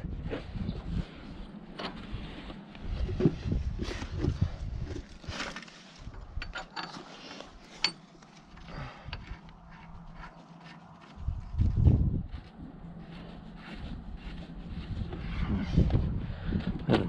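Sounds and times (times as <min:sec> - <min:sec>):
metal bolts clicking and rustling: 0:06.1 - 0:09.3.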